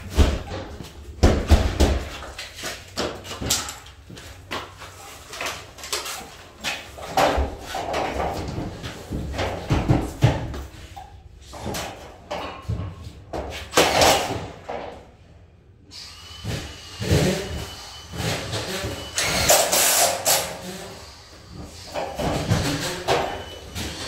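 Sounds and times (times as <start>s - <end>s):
knocks and clatter on metal frame: 5.8s - 15.0s.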